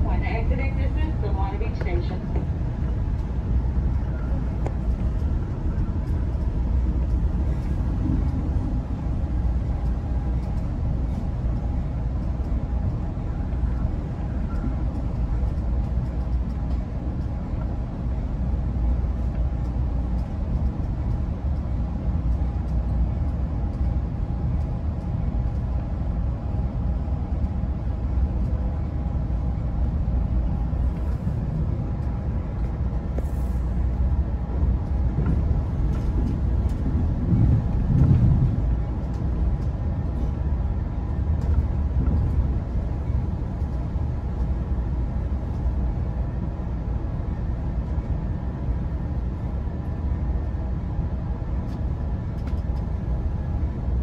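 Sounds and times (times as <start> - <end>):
train coach rumbling on track: 0.0 - 54.0.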